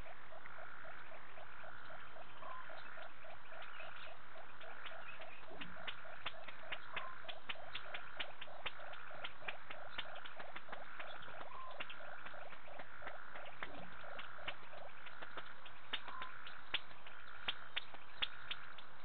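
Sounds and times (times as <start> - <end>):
frogs calling: 0.0 - 19.0
sharp clicks: 4.6 - 18.9.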